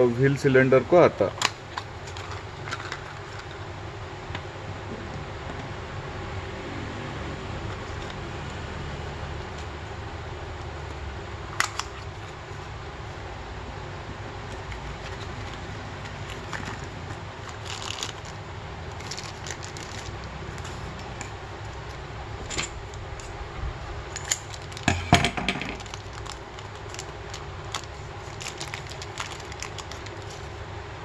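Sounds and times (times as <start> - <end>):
steady low hum: 0.0 - 31.0
plastic bag crinkling: 14.9 - 21.2, 24.1 - 24.9, 25.8 - 30.6.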